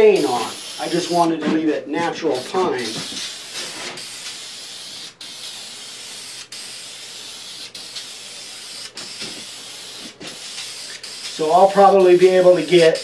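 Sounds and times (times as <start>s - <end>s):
aerosol spray hissing: 0.0s - 1.4s, 2.3s - 13.0s.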